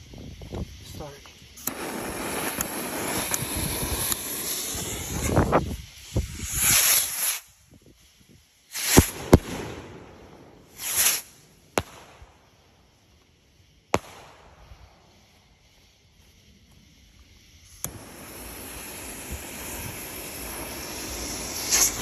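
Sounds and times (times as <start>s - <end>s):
fuse hissing and sparking: 0.0s - 22.0s
firework shell launch report: 0.2s - 22.0s
firework bangs overhead: 1.6s - 7.5s, 8.7s - 12.5s, 13.8s - 15.1s, 17.7s - 22.0s.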